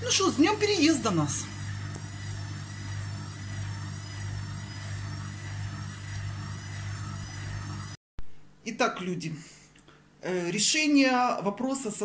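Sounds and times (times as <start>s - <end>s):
motor humming: 0.0s - 8.0s.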